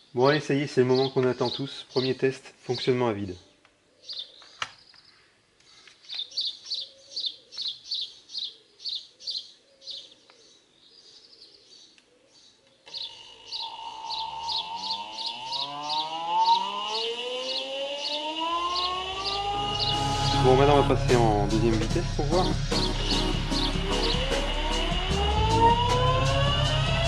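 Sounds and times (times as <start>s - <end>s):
bird chirping: 0.0s - 2.3s, 3.4s - 20.8s
electric motor whine rising: 12.9s - 27.0s.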